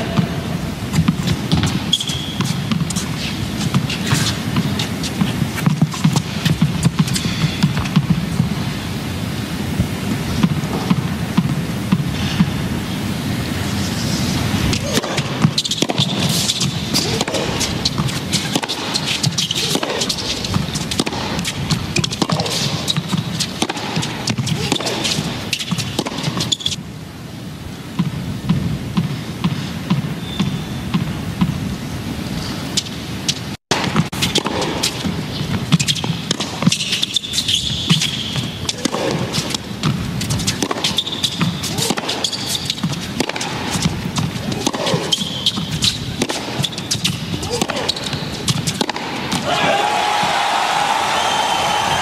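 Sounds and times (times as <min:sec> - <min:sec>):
crowd calling out: 0:49.3 - 0:52.0.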